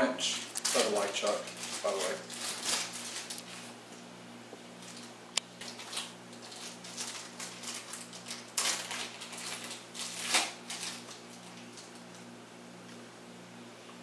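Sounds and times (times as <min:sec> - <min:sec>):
steady low hum: 0:00.0 - 0:14.0
packaging rustling and parts clattering: 0:00.4 - 0:03.6, 0:04.8 - 0:11.9.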